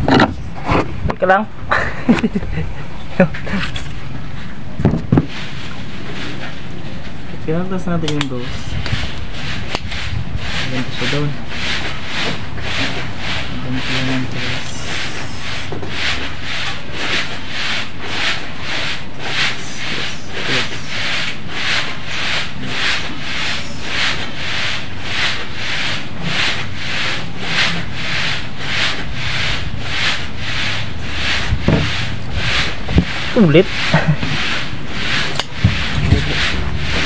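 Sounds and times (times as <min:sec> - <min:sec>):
hand tool rasping wood: 0:08.1 - 0:37.0.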